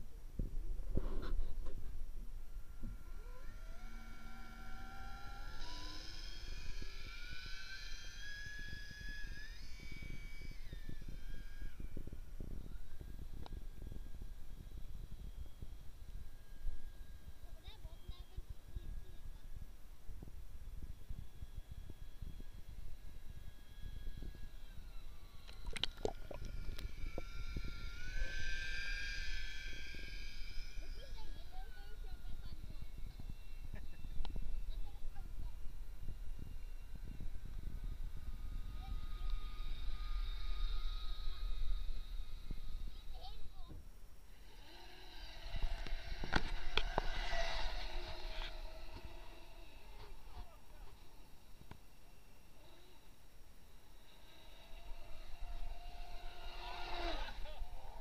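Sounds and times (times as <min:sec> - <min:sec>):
electric motor whine underwater: 0:00.8 - 0:58.0
low water rumble: 0:23.4 - 0:33.8.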